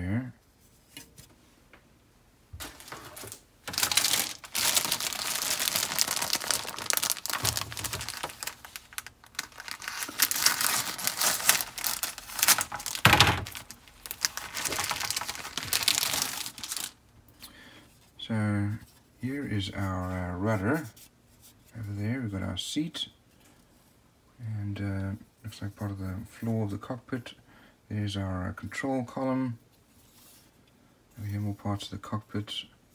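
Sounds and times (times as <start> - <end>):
plastic bags crinkling: 2.6 - 17.0.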